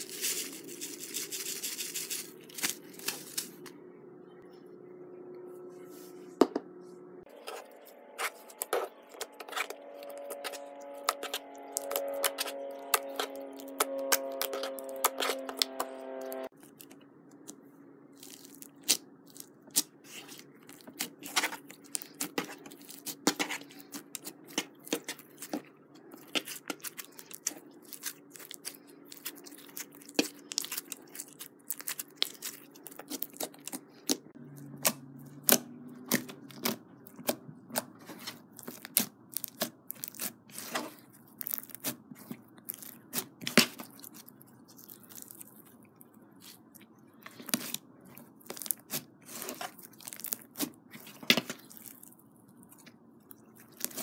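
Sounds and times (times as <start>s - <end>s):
sticky crackles and crunchy pops: 18.2s - 54.0s
slime squished by hand: 26.2s - 54.0s.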